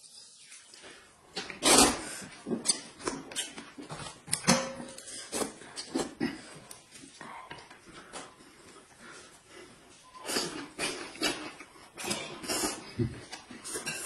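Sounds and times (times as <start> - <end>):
noodles slurped: 1.3 - 3.7, 10.2 - 14.0
chewing: 5.0 - 14.0.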